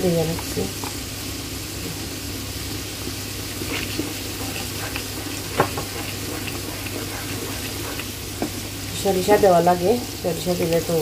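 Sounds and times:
garlic sizzling in oil: 0:00.0 - 0:11.0
wooden spatula scraping pan: 0:03.6 - 0:08.6.

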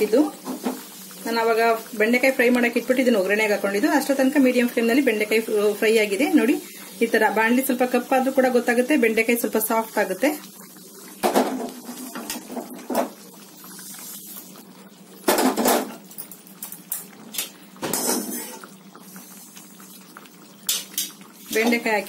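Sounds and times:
food scraped out of a frying pan: 0:17.9 - 0:19.6
steel spoon stirring in a pan: 0:18.0 - 0:19.6.

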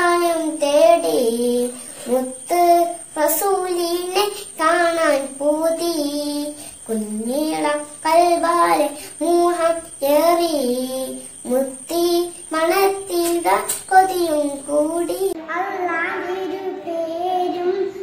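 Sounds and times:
girl singing unaccompanied: 0:00.0 - 0:18.0.

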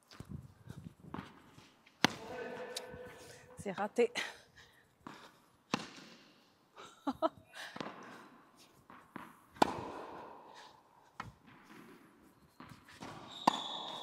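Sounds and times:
tennis ball bouncing on court: 0:01.1 - 0:03.0, 0:05.1 - 0:06.2, 0:08.8 - 0:10.3, 0:11.2 - 0:14.0
racket hitting tennis ball: 0:01.1 - 0:03.5, 0:05.1 - 0:06.4, 0:07.7 - 0:14.0.

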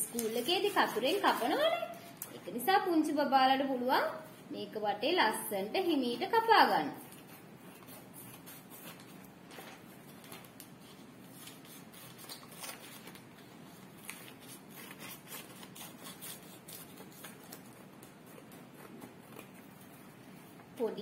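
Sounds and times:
scissors snipping paper: 0:00.0 - 0:01.9, 0:11.3 - 0:13.2, 0:14.0 - 0:19.6.

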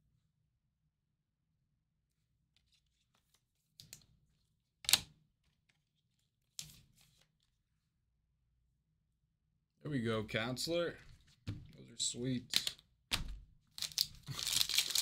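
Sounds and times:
packaging scraping rustles: 0:13.9 - 0:15.0.

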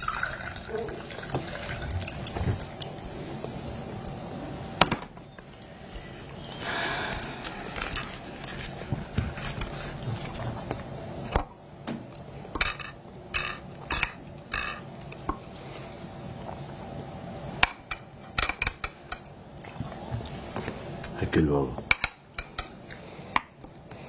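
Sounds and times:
tableware clinking: 0:12.6 - 0:14.8
cutlery tapping on plates: 0:21.9 - 0:22.8.

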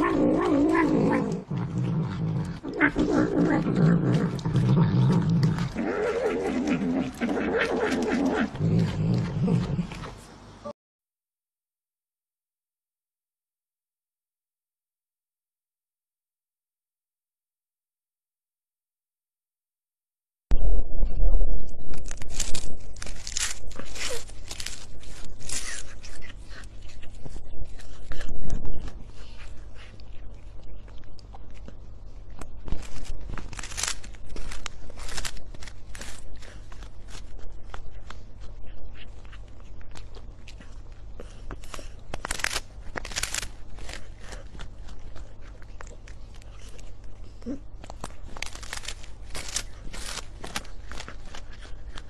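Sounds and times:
cat growling while eating: 0:00.0 - 0:10.3, 0:32.7 - 0:52.0.

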